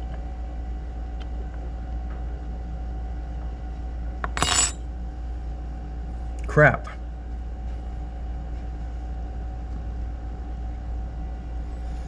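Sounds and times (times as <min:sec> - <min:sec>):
steady low hum: 0:00.0 - 0:12.0
small metal parts clinking in hand: 0:04.3 - 0:04.8.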